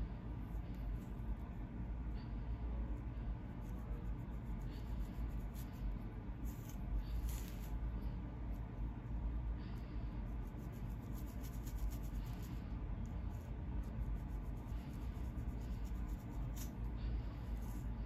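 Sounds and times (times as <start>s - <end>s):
low steady rumble: 0.0s - 18.0s
comb scratching scalp: 3.5s - 7.8s, 10.2s - 12.6s, 13.2s - 17.9s.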